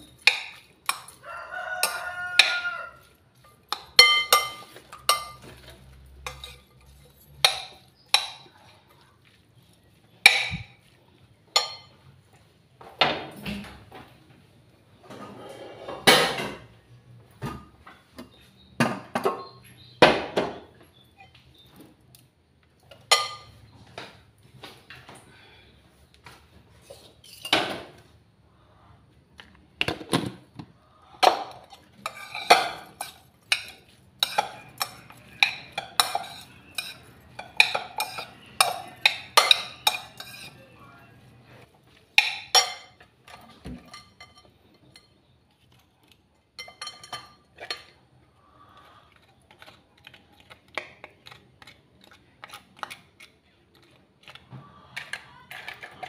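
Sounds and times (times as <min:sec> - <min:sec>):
metal spoon scraping ceramic bowl: 0:03.4 - 0:08.2, 0:26.8 - 0:27.6, 0:31.6 - 0:40.7.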